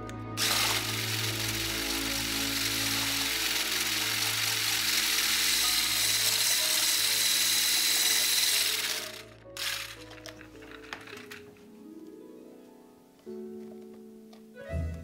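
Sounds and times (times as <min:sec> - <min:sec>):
hand blender whisking: 0:00.4 - 0:11.4.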